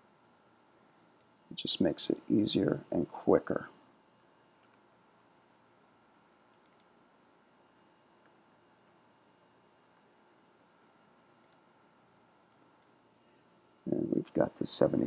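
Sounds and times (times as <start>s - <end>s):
room hiss: 0.0s - 15.0s
computer keyboard clicks: 6.5s - 6.9s, 11.4s - 11.6s.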